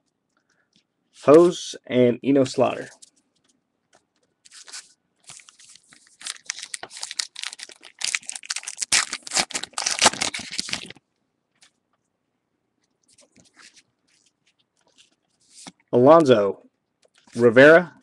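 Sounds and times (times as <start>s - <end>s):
wrapper tearing and crinkling: 4.5s - 11.0s.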